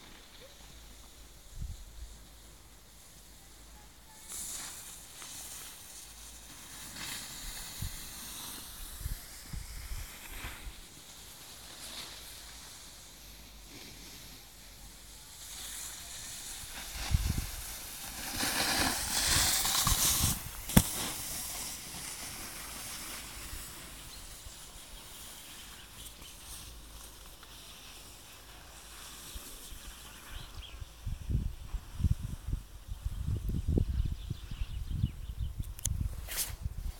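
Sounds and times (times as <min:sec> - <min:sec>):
snowboard scraping over snow: 0:04.2 - 0:30.6.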